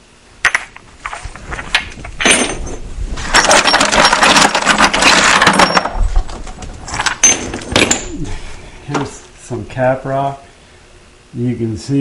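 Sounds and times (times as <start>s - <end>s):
flint pieces clattering in bucket: 2.2s - 6.0s.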